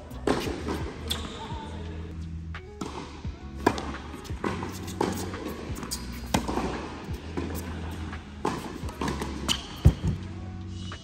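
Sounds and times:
background music with bass: 0.0s - 11.0s
tennis ball struck and bouncing: 2.8s - 10.2s.

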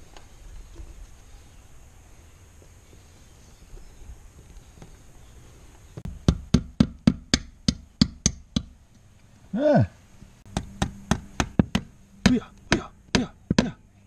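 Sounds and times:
hammer tapping on wood: 10.5s - 13.8s.

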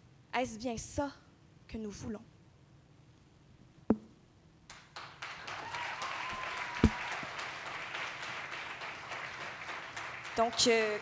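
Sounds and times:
loud thump: 3.9s - 4.2s
audience applauding: 4.7s - 11.0s.

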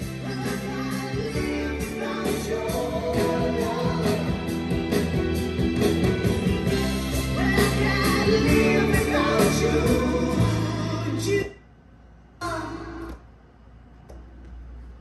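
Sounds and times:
song with singing over loudspeakers: 0.0s - 11.6s.

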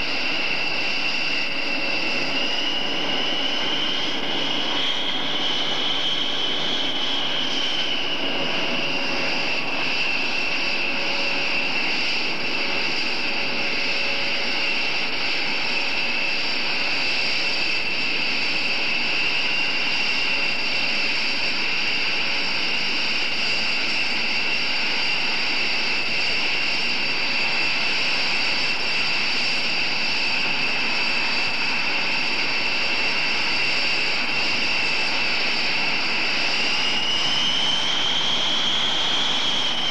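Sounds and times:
jet engines whining and roaring: 0.0s - 39.9s.

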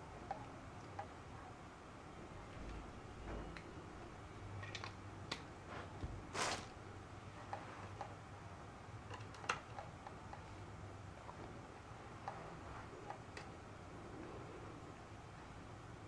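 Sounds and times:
small handling clicks: 4.6s - 5.5s, 9.0s - 10.5s.

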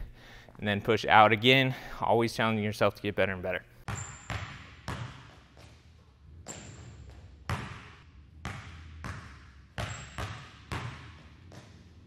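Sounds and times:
basketball bouncing on gym floor: 3.9s - 12.0s.

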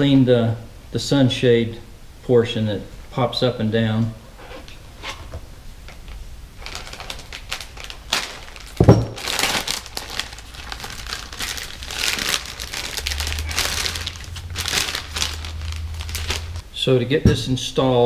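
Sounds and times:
plastic bag crinkling: 6.6s - 16.6s.

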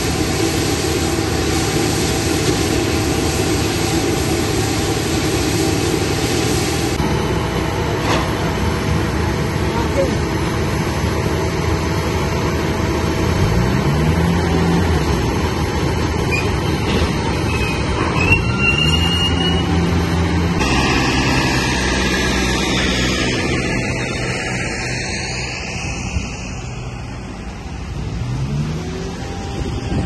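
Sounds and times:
steady engine noise: 0.0s - 18.4s, 19.0s - 30.0s
ground equipment engine revving: 18.8s - 30.0s.

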